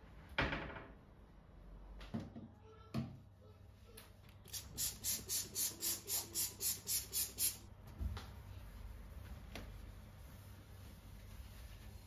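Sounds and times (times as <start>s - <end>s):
spray bottle squirts: 4.5s - 7.6s.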